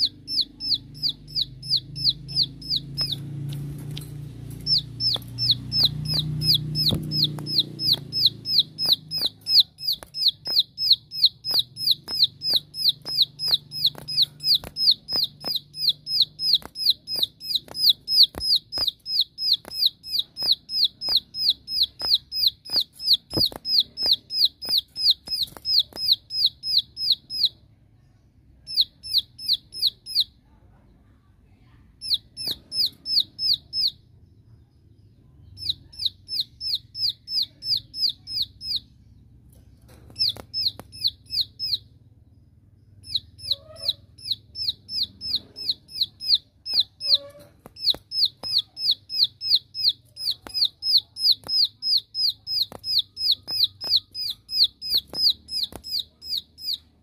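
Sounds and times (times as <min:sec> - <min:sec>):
bird calling sharp rapid notes: 0:00.0 - 0:03.4, 0:04.4 - 0:27.5, 0:43.0 - 0:56.9.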